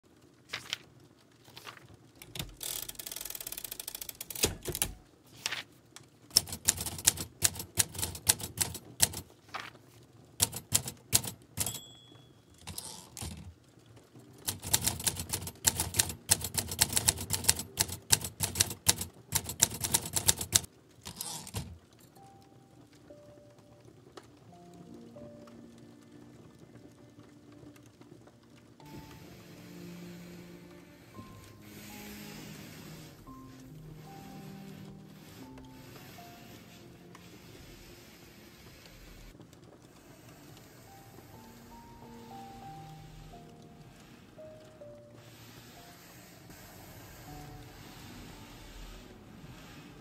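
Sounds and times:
typewriter key strikes: 2.2 - 5.0, 6.3 - 9.3, 10.4 - 13.5, 14.4 - 21.8
typewriter bell ding: 10.4 - 13.4.

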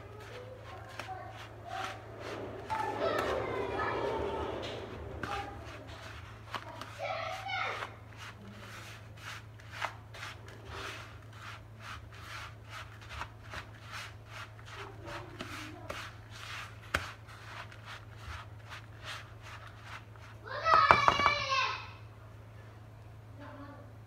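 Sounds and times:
low hum: 0.0 - 7.2
spoon scraping in plastic bowl: 0.0 - 21.1.

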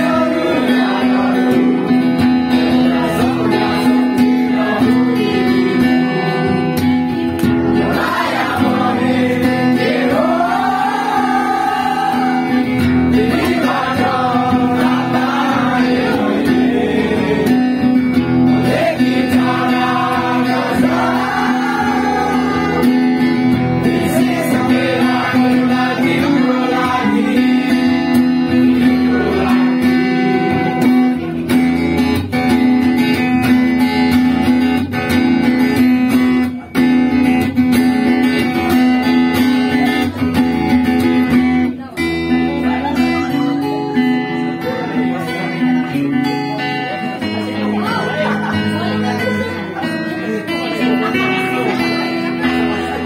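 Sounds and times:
voices singing: 0.0 - 31.1
acoustic guitar fingerstyle: 0.0 - 53.0.

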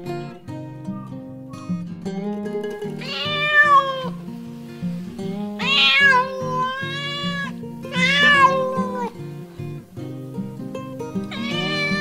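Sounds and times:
background music: 0.0 - 12.0
cat meowing: 3.0 - 4.2, 5.6 - 9.2, 11.3 - 12.0.

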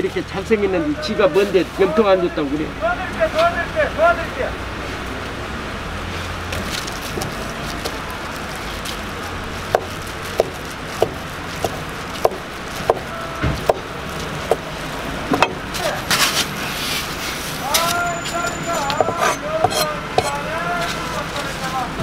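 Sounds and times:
background noise: 0.0 - 22.0
cleaver chopping on wooden board: 9.7 - 13.9, 19.0 - 20.4.

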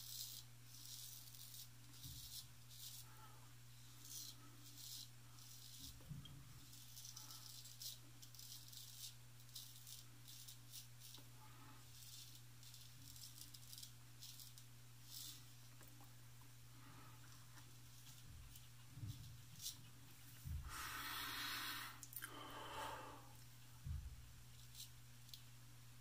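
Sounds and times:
straight razor rasping on stubble: 0.0 - 3.1, 4.0 - 15.4, 17.9 - 19.9, 24.5 - 25.4.

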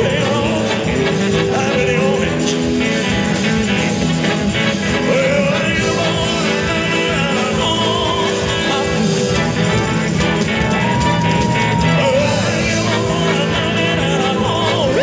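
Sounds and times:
live rock band playing: 0.0 - 15.0
man singing: 0.0 - 15.0.

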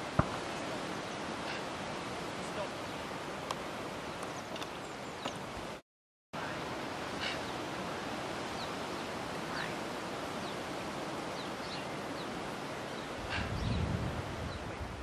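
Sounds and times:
low wind gust: 0.0 - 5.8, 6.4 - 15.0
wind on microphone: 6.5 - 15.0.

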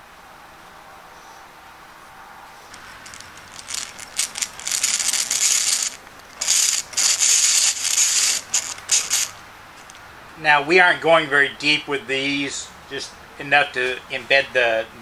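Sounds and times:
hand drill boring into wood: 2.7 - 9.4.

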